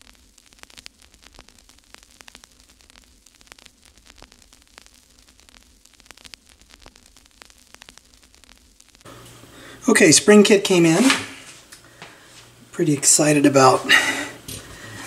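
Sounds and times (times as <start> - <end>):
sharp crackling clicks: 0.0 - 9.1
low electrical hum: 0.0 - 15.0
static hiss: 0.0 - 15.0.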